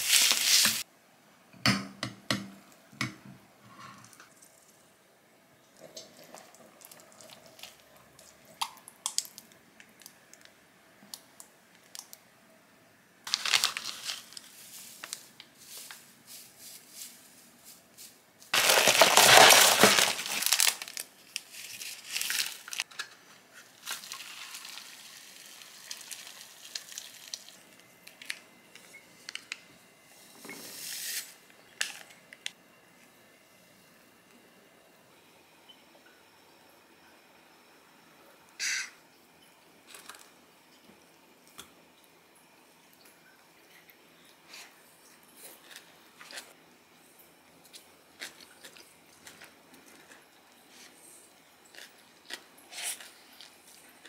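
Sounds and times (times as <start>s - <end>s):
plastic packaging crinkling: 0.0s - 0.8s, 13.3s - 16.0s, 18.5s - 23.1s, 23.8s - 28.4s.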